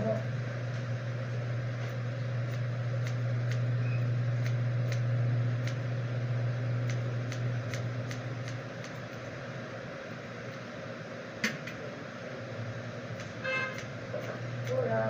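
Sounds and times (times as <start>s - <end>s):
low machine hum: 0.0s - 15.0s
scissors snipping hair: 2.4s - 3.7s, 4.4s - 5.8s, 6.8s - 9.2s, 13.1s - 15.0s.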